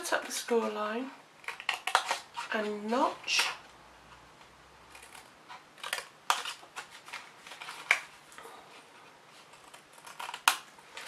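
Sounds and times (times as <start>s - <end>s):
paper rustling: 5.0s - 11.0s.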